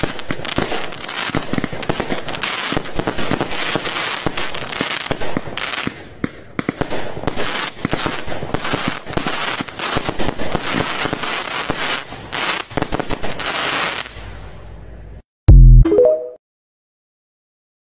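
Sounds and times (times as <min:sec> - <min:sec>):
fireworks cake firing: 0:00.0 - 0:14.3
fireworks crackling: 0:00.0 - 0:14.4.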